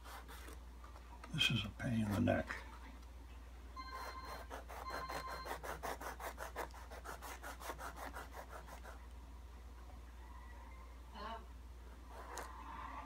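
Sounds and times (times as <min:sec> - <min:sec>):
file scraping back and forth: 0:03.8 - 0:09.0.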